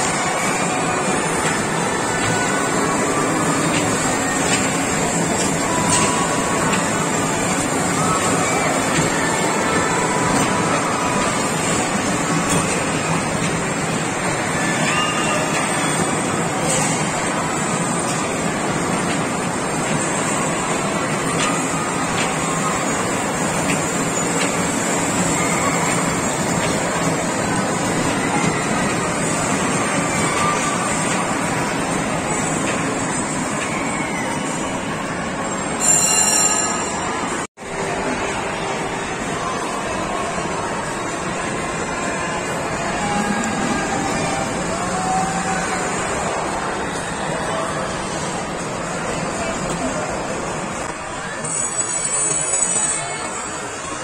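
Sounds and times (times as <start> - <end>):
kiddie train ride running: 0.0 - 54.0
loud din of ride hall: 0.0 - 54.0
toy train running on track: 50.8 - 53.9.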